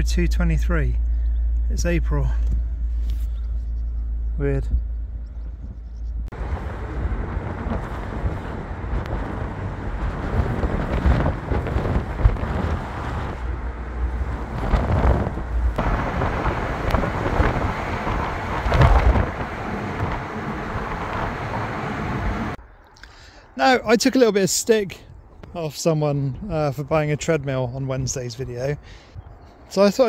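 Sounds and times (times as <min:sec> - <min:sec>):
road noise: 0:00.0 - 0:30.0
wind buffeting microphone: 0:02.3 - 0:22.6, 0:26.3 - 0:30.0.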